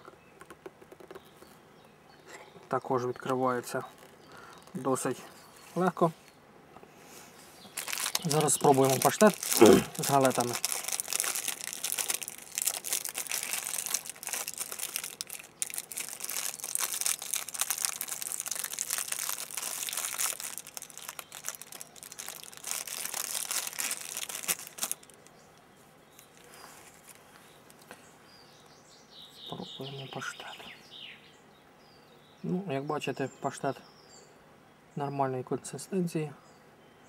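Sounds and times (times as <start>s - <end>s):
foil wrapper crinkling and tearing: 3.7s - 4.9s, 7.7s - 25.3s, 26.1s - 27.8s.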